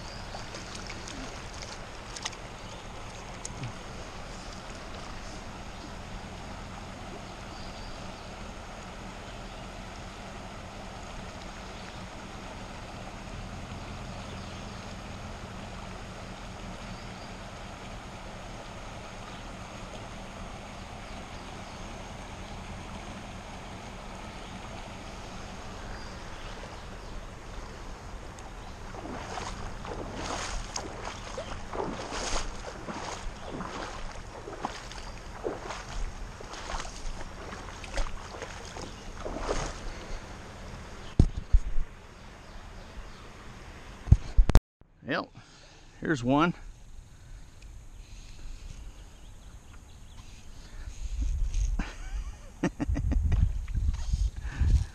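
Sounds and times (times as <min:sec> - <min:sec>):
sharp splashes and knocks: 0:00.0 - 0:05.7, 0:25.2 - 0:40.3
river water running over rocks: 0:00.0 - 0:41.2.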